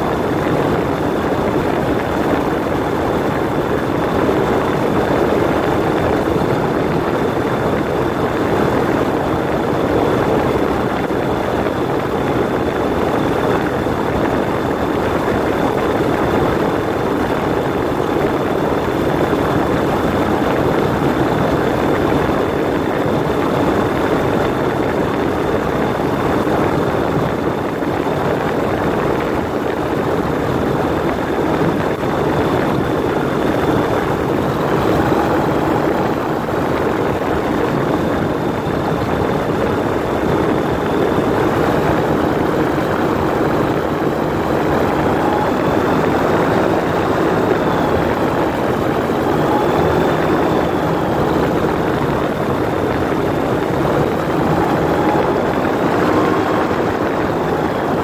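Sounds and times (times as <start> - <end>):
microlight engine and propeller: 0.0 - 58.0
wind rushing: 40.1 - 58.0.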